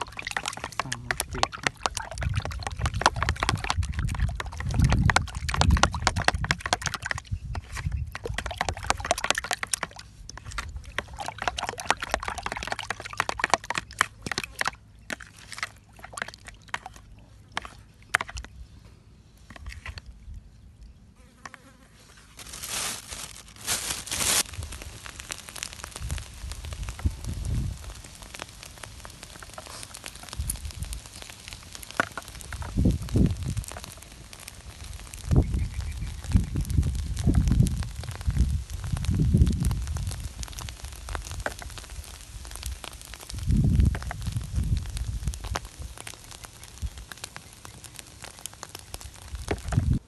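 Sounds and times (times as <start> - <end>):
spoon beating eggs in plastic bowl: 0.1 - 15.4
burst of hissing noise: 24.0 - 48.2.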